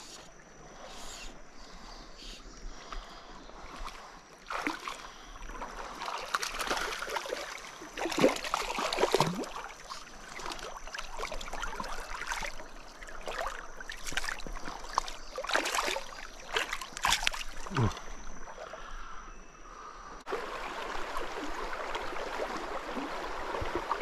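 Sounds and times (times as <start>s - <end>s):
stream running: 2.8s - 18.9s, 20.3s - 24.0s
fish splashing in water: 4.5s - 18.0s.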